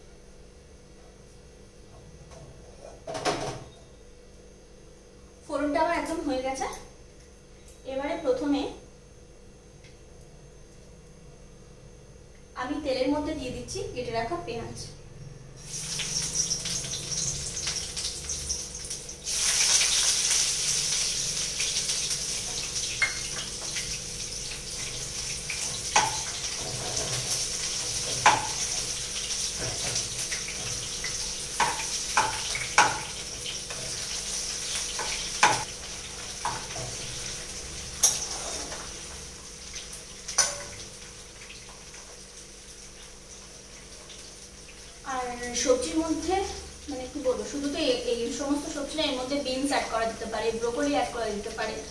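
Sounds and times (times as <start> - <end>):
onions sizzling in oil: 15.6 - 51.9.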